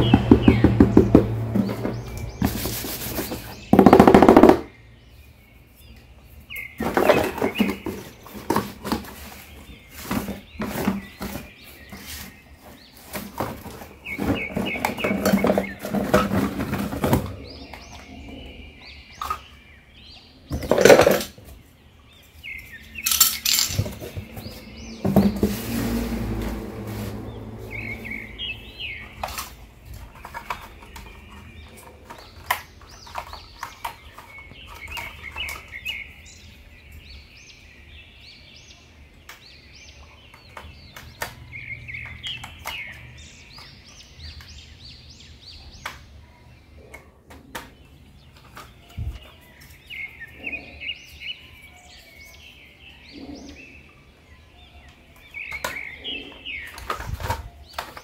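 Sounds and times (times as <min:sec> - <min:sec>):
birds chirping: 0:00.0 - 0:58.0
plastic toy parts clicking: 0:23.0 - 0:23.9.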